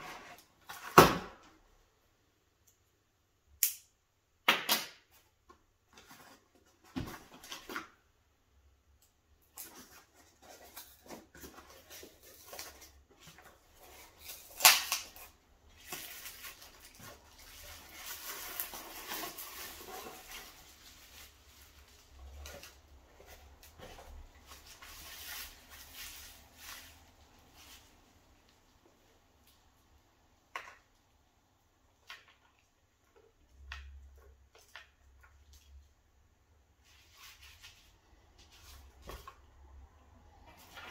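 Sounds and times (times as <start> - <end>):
bubble wrap rustling: 9.5 - 29.6, 36.8 - 39.8.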